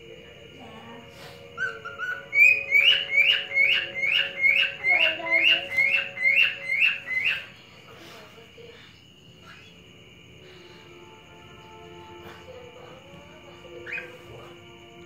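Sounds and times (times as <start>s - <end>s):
cockatiel whistling: 1.6s - 7.5s, 13.8s - 14.3s.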